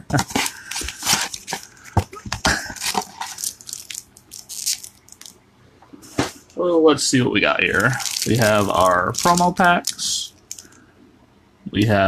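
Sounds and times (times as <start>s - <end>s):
foil packs crinkling: 0.1s - 5.3s, 7.7s - 10.8s.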